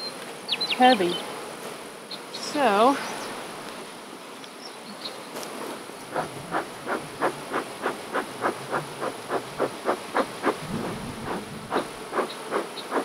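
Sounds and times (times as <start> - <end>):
bees humming: 0.0 - 13.0
bee smoker bellows puffing: 5.5 - 13.0.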